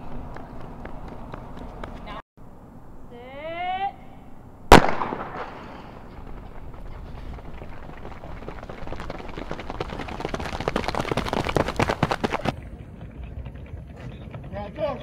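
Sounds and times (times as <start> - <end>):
footfalls of sprinters on track: 5.8 - 15.0.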